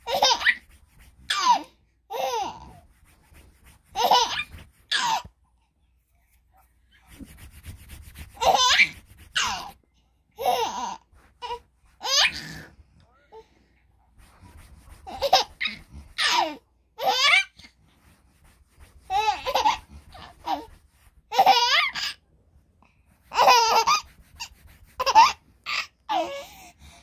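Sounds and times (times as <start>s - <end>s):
baby giggling and squealing: 0.0s - 0.7s, 1.3s - 2.8s, 4.0s - 5.3s, 8.4s - 9.8s, 10.4s - 12.7s, 15.0s - 17.6s, 19.1s - 20.7s, 21.3s - 22.2s, 23.3s - 24.1s, 25.0s - 26.4s.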